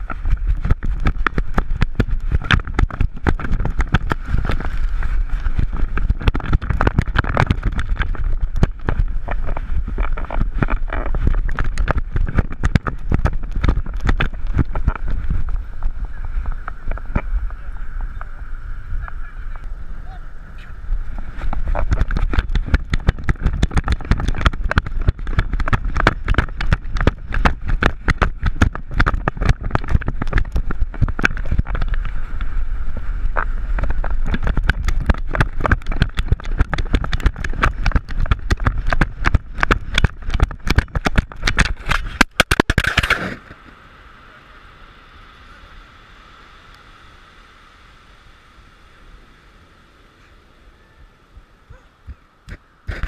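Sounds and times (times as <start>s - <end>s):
wind buffeting camera: 0.0s - 44.1s, 48.1s - 53.0s
faint hiss: 7.5s - 22.6s, 25.9s - 37.0s, 42.0s - 53.0s
camera jolting and knocking: 33.8s - 43.4s.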